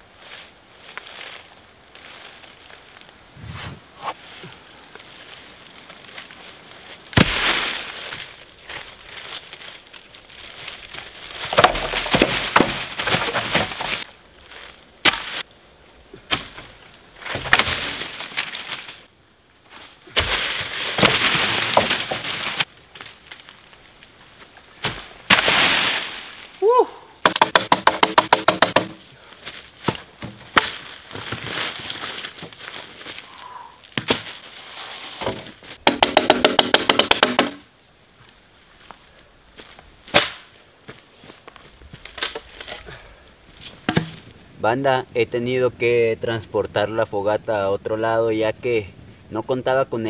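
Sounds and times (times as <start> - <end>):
dry leaves crunching underfoot: 0.0 - 15.5, 16.4 - 26.6, 29.0 - 35.8
dry sticks snapping: 42.0 - 42.8.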